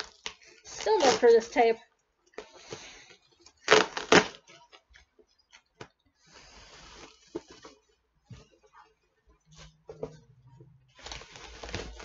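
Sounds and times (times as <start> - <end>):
packing tape tearing: 0.0 - 1.4, 3.6 - 4.7
cardboard rustling: 11.0 - 12.0.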